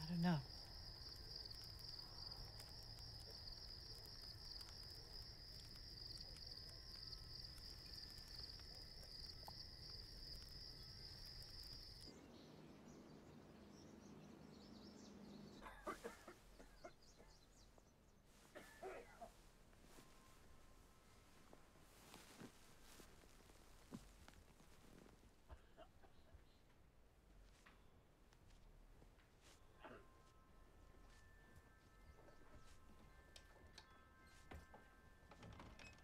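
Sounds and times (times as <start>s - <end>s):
crickets trilling: 0.0s - 12.1s.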